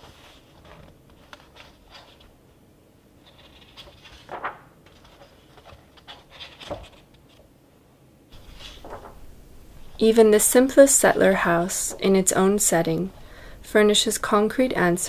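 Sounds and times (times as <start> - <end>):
book pages turning: 0.0 - 2.4, 3.2 - 7.5, 8.3 - 10.0.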